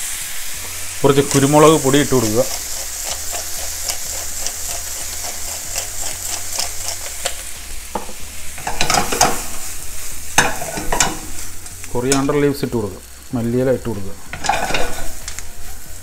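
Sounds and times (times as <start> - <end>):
frying sizzle: 0.0 - 16.0
wooden spatula scraping pan: 14.3 - 15.8.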